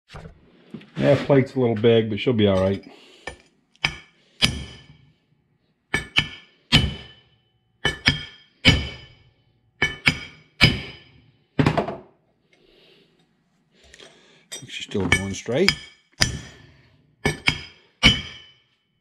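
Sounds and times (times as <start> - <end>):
hammer striking steel plate: 3.8 - 5.0, 5.9 - 11.2, 15.0 - 18.6.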